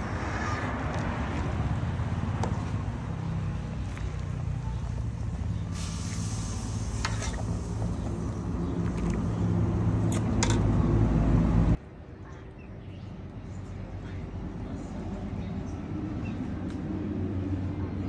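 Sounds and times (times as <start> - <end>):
low rumbling motor hum: 0.7 - 11.8.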